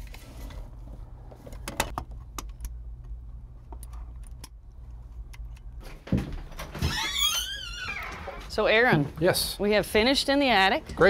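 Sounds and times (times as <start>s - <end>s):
steady low hum: 0.0s - 6.6s.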